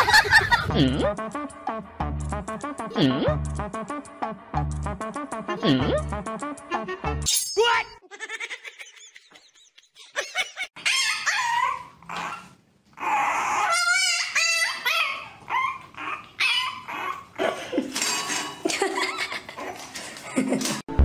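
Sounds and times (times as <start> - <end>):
dog whining and yipping: 10.8 - 17.4.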